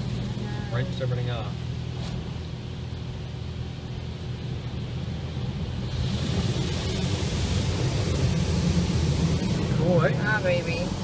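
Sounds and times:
car wash spray hissing: 0:00.0 - 0:11.0
low rumble: 0:00.0 - 0:11.0.

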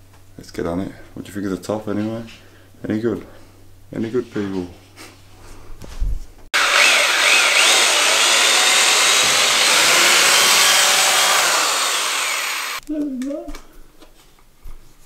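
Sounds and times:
electric drill boring into wall: 0:06.6 - 0:12.8.

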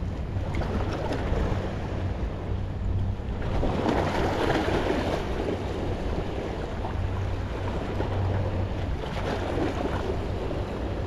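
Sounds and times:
wind rumbling on microphone: 0:00.0 - 0:11.0
waves lapping against rocks: 0:03.4 - 0:06.9, 0:09.0 - 0:10.5.

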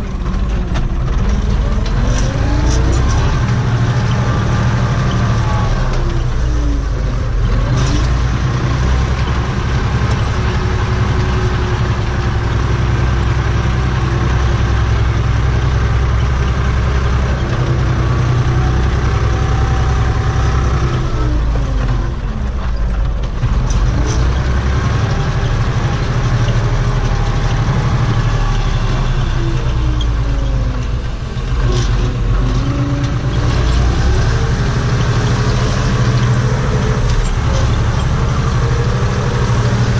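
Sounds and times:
tractor diesel engine running: 0:00.0 - 0:39.9
engine whine dipping in pitch: 0:26.3 - 0:39.9.

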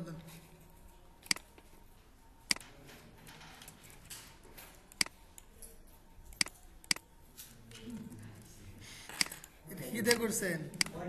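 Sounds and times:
computer mouse clicks: 0:01.2 - 0:01.5, 0:04.9 - 0:05.5, 0:06.3 - 0:07.1, 0:09.2 - 0:11.0.

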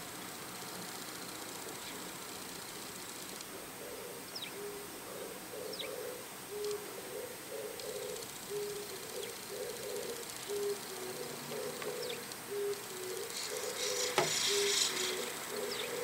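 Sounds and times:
small birds chirping: 0:00.5 - 0:16.0
dove cooing: 0:03.5 - 0:16.0
scratchy high-pitched burst: 0:13.2 - 0:15.4.

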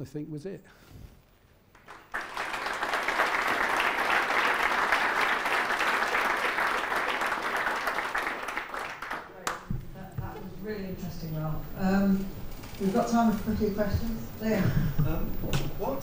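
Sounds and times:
audience applauding: 0:01.7 - 0:09.7.

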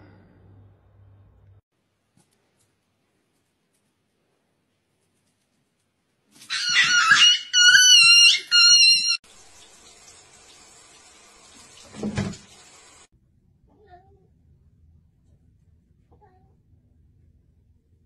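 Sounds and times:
puppy squealing: 0:06.4 - 0:09.2.

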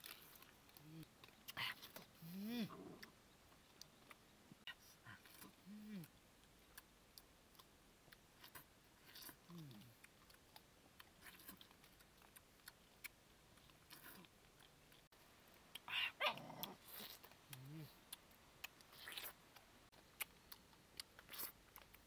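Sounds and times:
wet chewing and sucking: 0:00.0 - 0:04.3, 0:05.1 - 0:22.0.

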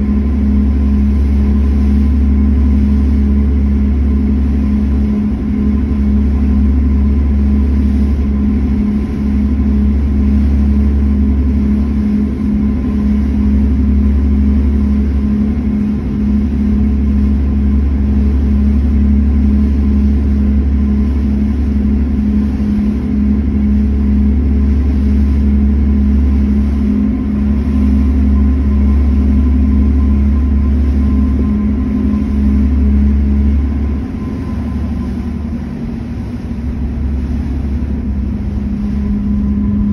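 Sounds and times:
ferry engines droning: 0:00.0 - 0:39.9.

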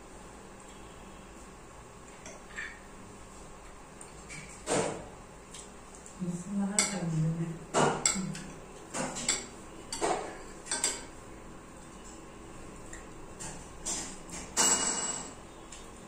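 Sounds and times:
cutlery clinking on bowls: 0:07.8 - 0:11.1, 0:13.4 - 0:15.4.

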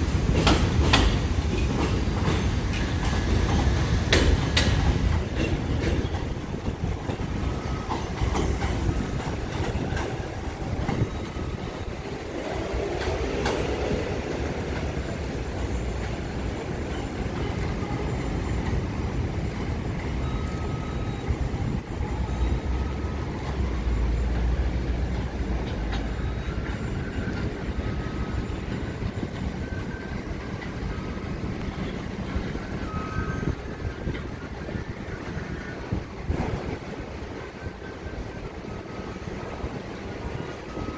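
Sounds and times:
train rumble: 0:00.0 - 0:40.9
train wheel clicks on rail joints: 0:00.1 - 0:21.8, 0:22.7 - 0:30.9.

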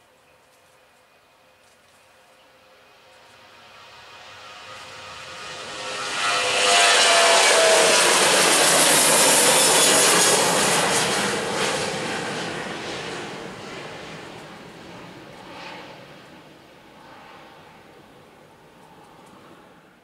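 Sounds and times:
jet engines at take-off roar: 0:01.6 - 0:20.0.

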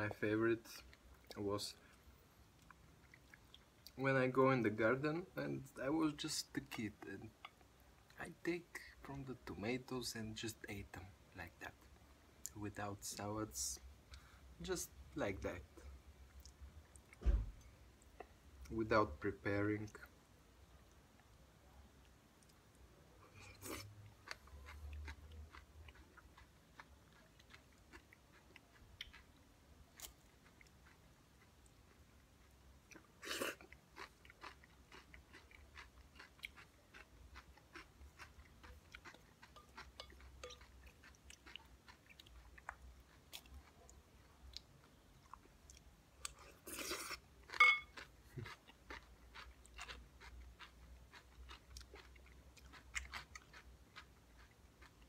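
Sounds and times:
chewing and crunching vegetables: 0:00.6 - 0:04.0, 0:22.0 - 0:55.0.

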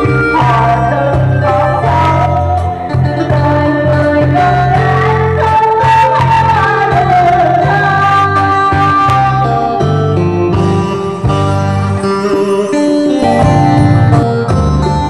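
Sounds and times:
woman singing into microphone: 0:00.0 - 0:10.3
electronic keyboard with bass beat: 0:00.0 - 0:15.0.

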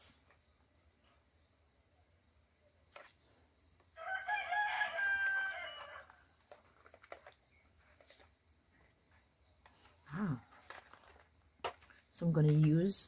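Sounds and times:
rooster crowing: 0:04.0 - 0:06.2.

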